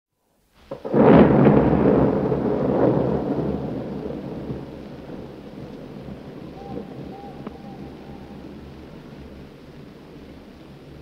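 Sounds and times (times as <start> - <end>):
rocket explosion with rumble: 0.7 - 4.7.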